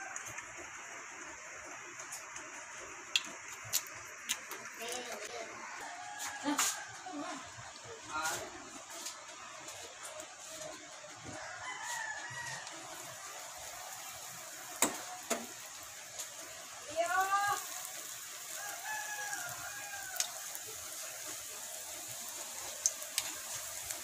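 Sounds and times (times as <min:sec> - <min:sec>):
food sizzling in oil: 0:00.0 - 0:24.0
rooster crowing: 0:05.4 - 0:07.6, 0:11.1 - 0:15.9, 0:16.9 - 0:22.7.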